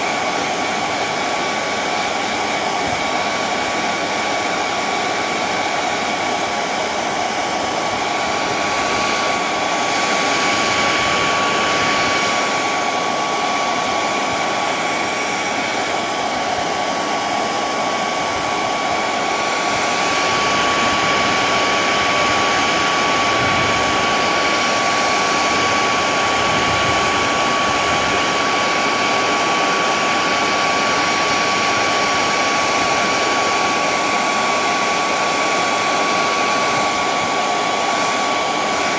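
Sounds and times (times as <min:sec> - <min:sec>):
hair dryer running: 0:00.0 - 0:38.9.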